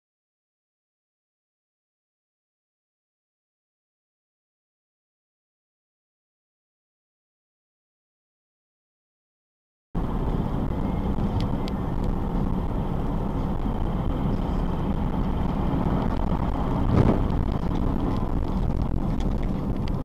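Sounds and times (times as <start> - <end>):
car road and engine rumble: 10.0 - 20.0.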